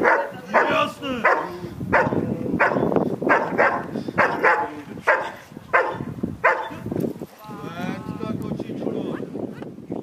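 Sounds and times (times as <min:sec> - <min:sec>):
dog barking sharply: 0:00.0 - 0:06.8.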